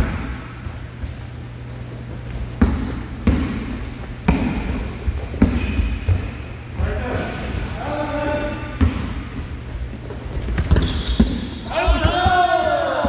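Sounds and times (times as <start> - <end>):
basketball bouncing on hardwood floor: 10.3 - 12.4.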